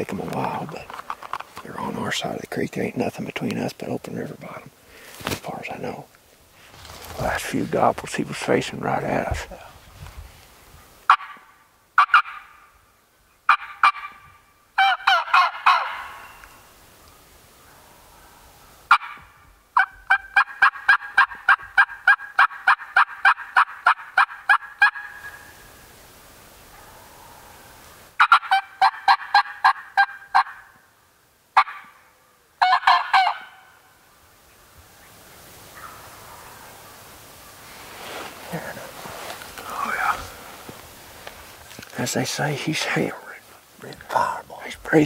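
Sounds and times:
turkey gobbling: 11.1 - 11.4, 12.0 - 12.7, 13.5 - 16.4, 18.9 - 25.6, 28.2 - 30.8, 31.6 - 31.9, 32.6 - 33.8, 35.7 - 37.6.

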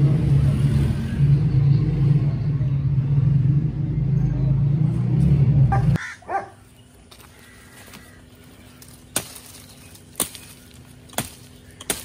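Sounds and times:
axe chopping a branch: 7.1 - 12.0.

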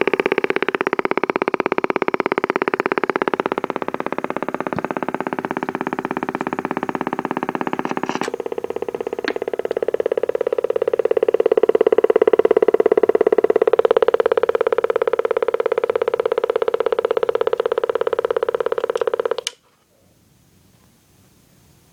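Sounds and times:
cb radio motorboating pulses: 0.0 - 19.5.

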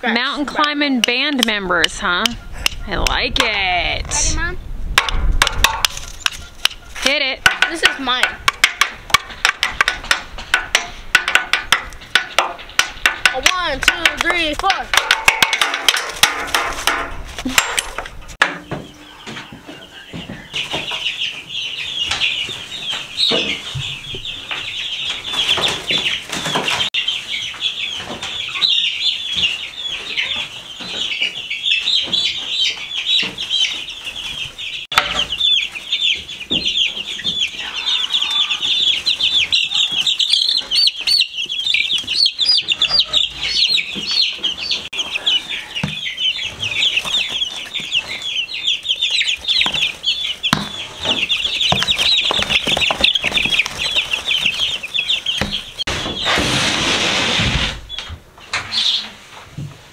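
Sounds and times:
chicks peeping: 0.0 - 59.9
knocks and rustles: 4.9 - 21.1, 49.2 - 58.8
sticks banging on wire cage: 5.0 - 18.9, 34.9 - 35.4.

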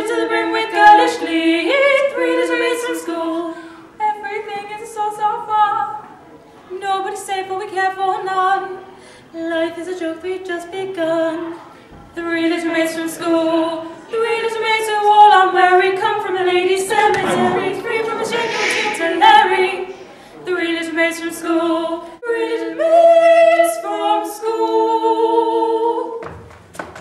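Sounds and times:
voices singing a cappella: 12.2 - 26.2.

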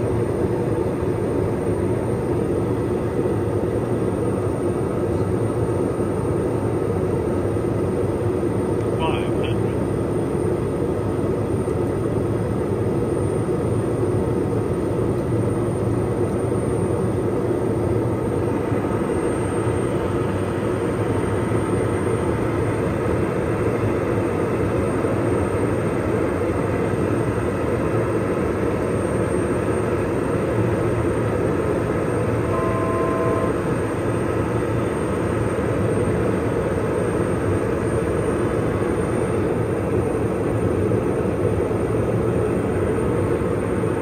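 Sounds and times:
turboprop cabin noise: 0.0 - 44.0
two-note electronic tone: 32.4 - 33.7.

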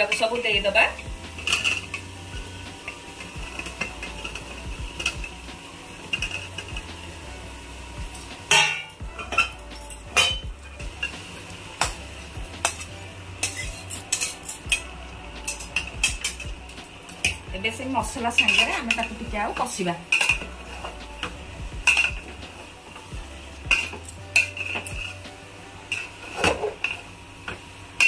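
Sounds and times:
spoon scraping and clanking pot: 1.4 - 2.1, 2.7 - 5.3, 6.0 - 6.9, 8.2 - 11.2, 12.6 - 17.5, 18.3 - 19.2, 20.1 - 22.7, 23.7 - 25.2, 25.9 - 27.6.

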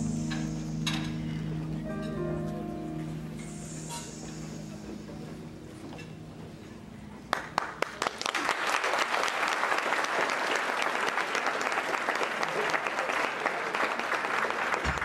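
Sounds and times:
music: 0.0 - 7.8
audience applause: 7.3 - 15.0.

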